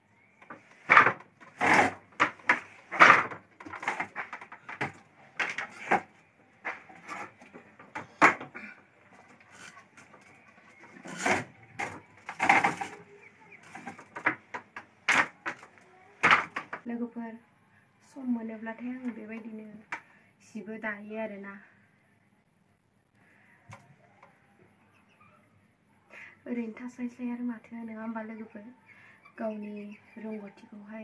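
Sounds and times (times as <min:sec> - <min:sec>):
handloom wooden knocks and clacks: 0:00.4 - 0:06.0, 0:06.6 - 0:16.9.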